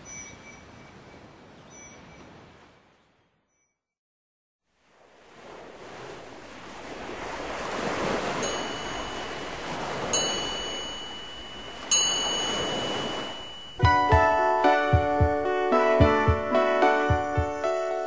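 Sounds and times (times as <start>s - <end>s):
bell-like chime tones: 0.0s - 2.3s, 8.4s - 15.3s
ocean surf: 4.8s - 18.0s.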